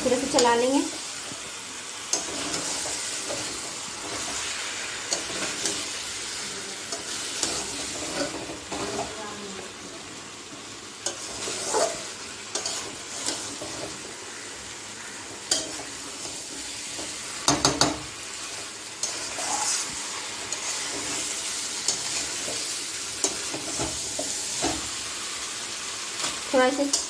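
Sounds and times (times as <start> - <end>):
hot oil sizzling: 0.0 - 27.0
metal spatula scraping a pan: 2.1 - 6.0, 6.9 - 9.2, 11.0 - 17.8, 19.0 - 25.0.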